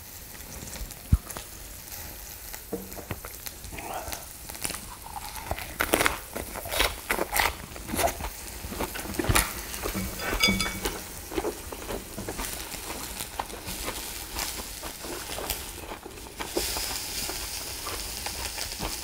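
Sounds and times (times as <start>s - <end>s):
meat crackling on grill: 0.0s - 19.0s
ringing clink: 10.0s - 11.0s.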